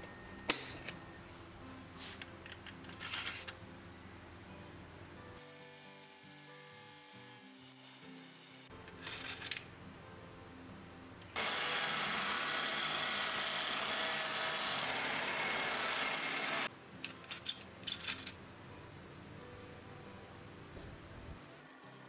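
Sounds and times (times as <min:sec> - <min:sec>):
soft background music: 0:00.0 - 0:22.0
power drill boring into wood: 0:11.4 - 0:16.7.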